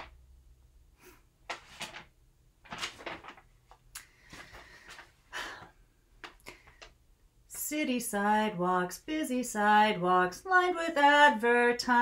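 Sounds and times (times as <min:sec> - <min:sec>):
paper rustling: 0:01.5 - 0:05.2.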